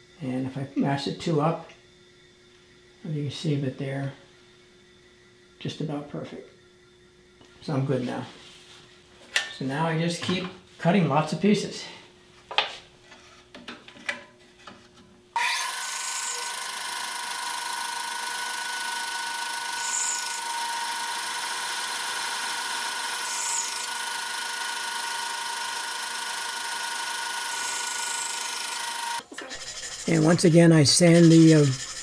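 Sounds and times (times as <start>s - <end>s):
band saw whine and hiss: 15.4s - 32.0s.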